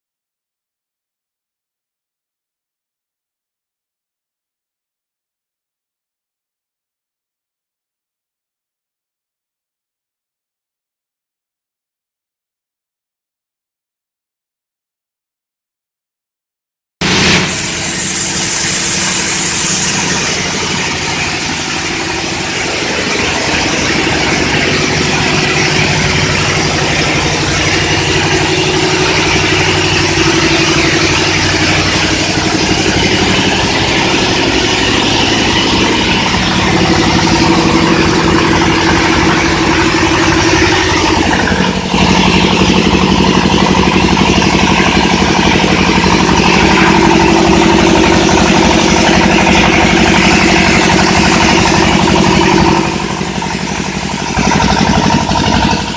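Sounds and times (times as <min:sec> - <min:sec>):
industrial engine running: 0:17.0 - 0:55.9.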